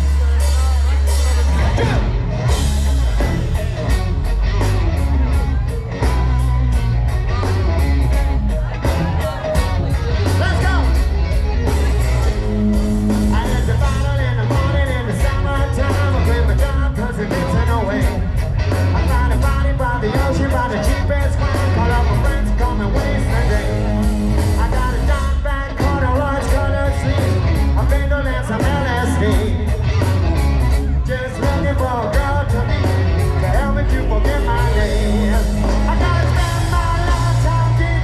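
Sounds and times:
hard rock band playing live: 0.0 - 38.0
man singing: 13.1 - 30.1, 30.8 - 38.0.

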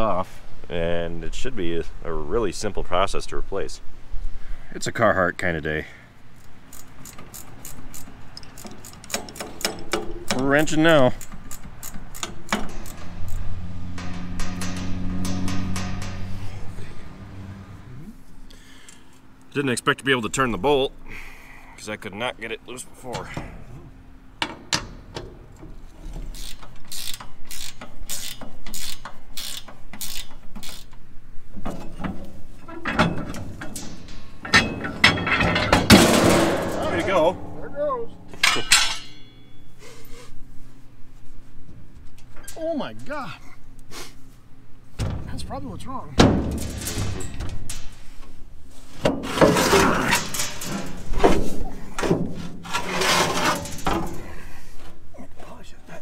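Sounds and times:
socket ratchet clicking: 6.7 - 10.4, 11.2 - 16.3, 26.3 - 31.0
sheet metal door knocks and bangs: 13.8 - 16.4, 34.6 - 37.6, 46.2 - 47.7.

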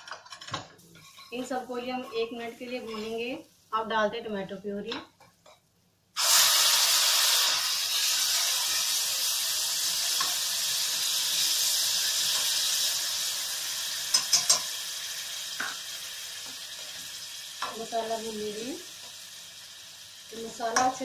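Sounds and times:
tomato puree sizzling: 6.2 - 21.0
metal spoon clicking on pan: 14.1 - 14.7.

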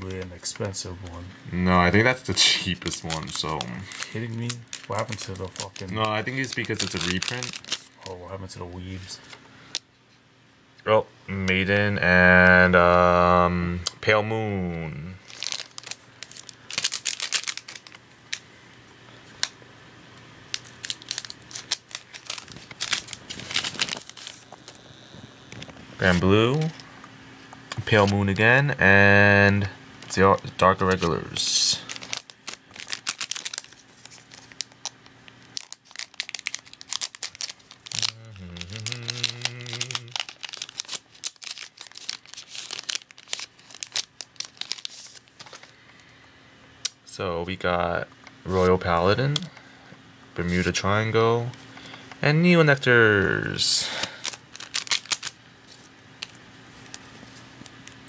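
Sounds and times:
foil wrappers crinkling: 1.8 - 9.8, 15.2 - 18.5, 20.5 - 27.0, 27.7 - 28.4, 30.0 - 45.8, 53.8 - 58.0
cards being handled: 2.0 - 8.2, 30.0 - 45.7, 54.0 - 58.0.

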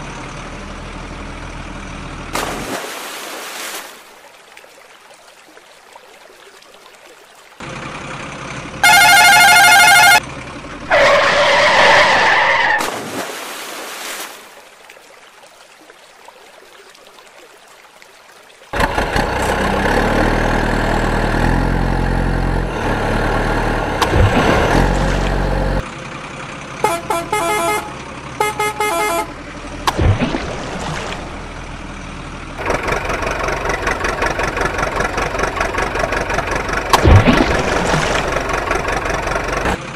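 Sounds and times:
truck engine running: 0.0 - 2.5, 7.6 - 12.4, 18.8 - 39.9
short horn toots: 8.8 - 10.2, 26.8 - 29.4
truck horn blasts: 8.8 - 10.3, 26.7 - 29.5.

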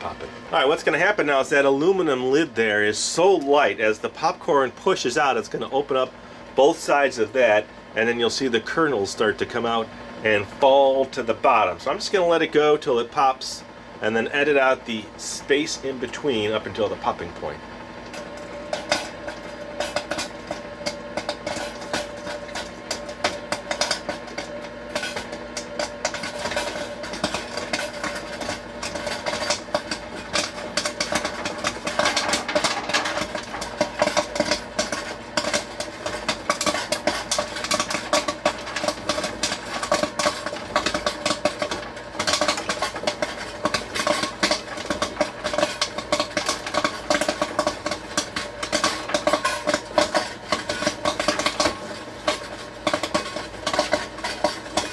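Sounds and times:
motor hum: 9.7 - 54.9
popcorn kernels popping: 14.1 - 54.9.

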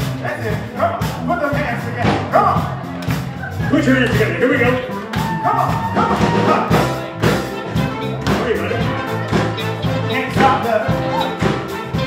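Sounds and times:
live band playing pop song: 0.0 - 12.0.

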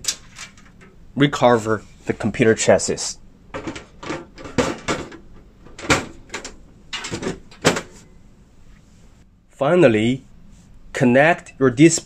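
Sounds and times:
computer side cover knocking and clicking: 3.5 - 8.0.

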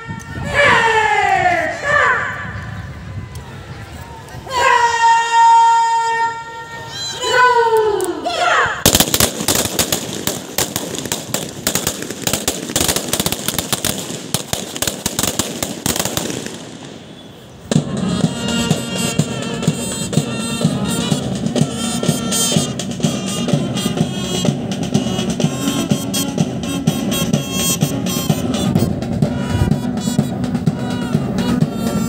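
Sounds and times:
brass band playing: 8.8 - 32.0.

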